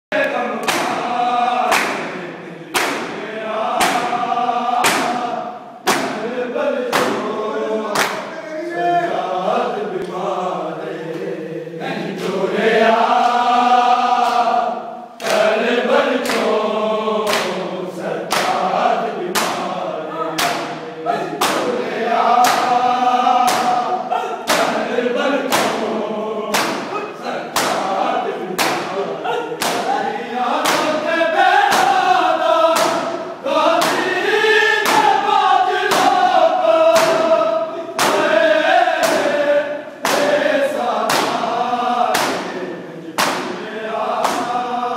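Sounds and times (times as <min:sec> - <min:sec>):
men chanting in unison: 0:00.1 - 0:44.9
hands slapping chests: 0:00.6 - 0:06.3, 0:06.9 - 0:07.3, 0:07.9 - 0:08.3, 0:15.2 - 0:16.6, 0:17.2 - 0:17.7, 0:18.3 - 0:19.7, 0:20.3 - 0:20.8, 0:21.4 - 0:25.9, 0:26.5 - 0:27.9, 0:28.6 - 0:29.0, 0:29.6 - 0:29.9, 0:30.6 - 0:31.0, 0:31.6 - 0:35.2, 0:35.9 - 0:37.4, 0:38.0 - 0:38.4, 0:39.0 - 0:39.4, 0:40.0 - 0:42.6, 0:43.2 - 0:44.6.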